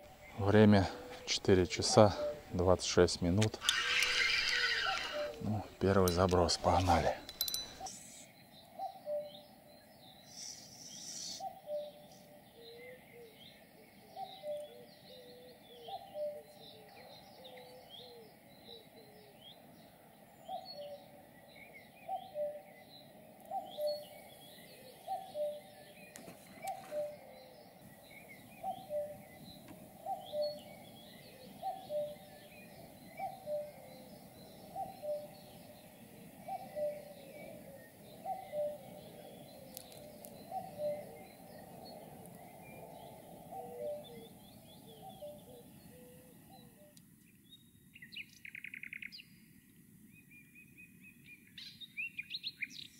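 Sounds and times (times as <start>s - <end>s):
songbirds chirping: 0.0s - 52.9s.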